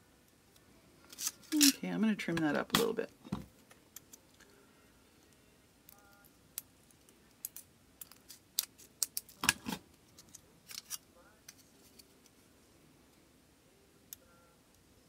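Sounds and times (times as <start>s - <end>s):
scissors snipping tin sheet: 10.7s - 11.0s.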